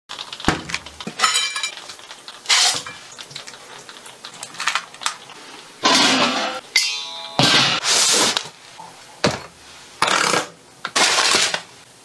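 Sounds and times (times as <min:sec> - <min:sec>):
tray and plate clinks: 0:06.1 - 0:07.8.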